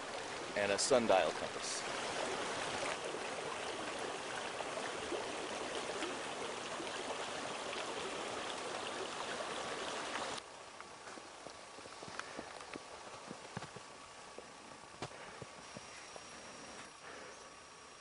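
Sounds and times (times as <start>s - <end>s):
stream water flowing: 0.0s - 11.9s.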